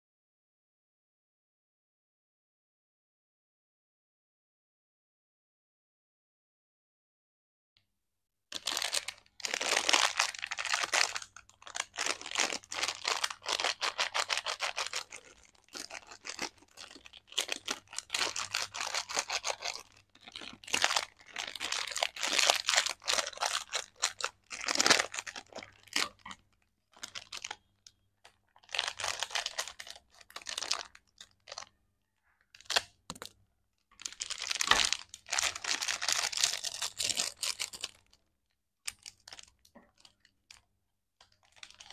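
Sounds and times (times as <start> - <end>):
plastic pouch crinkling: 8.5 - 27.7, 28.5 - 31.8, 32.6 - 33.3, 33.9 - 38.2, 38.9 - 40.6, 41.2 - 41.9.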